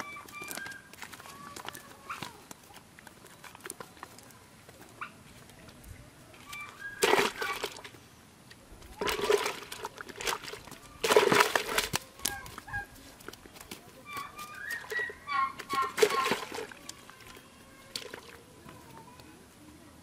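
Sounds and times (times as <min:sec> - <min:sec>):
fish splashing in a bucket: 0:06.4 - 0:08.0, 0:08.8 - 0:18.5.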